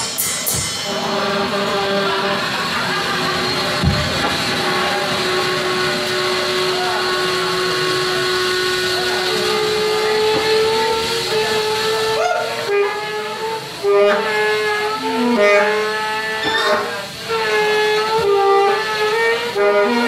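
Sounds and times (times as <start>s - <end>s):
hissing noise wash: 0.0s - 13.9s
long held saxophone tones: 0.0s - 20.0s.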